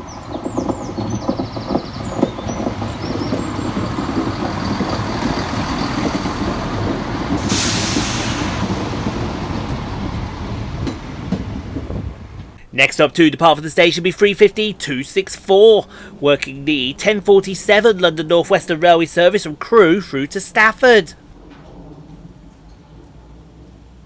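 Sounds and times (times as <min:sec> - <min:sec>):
diesel train rumbling past: 0:00.0 - 0:24.0
air brake hiss: 0:07.4 - 0:09.0.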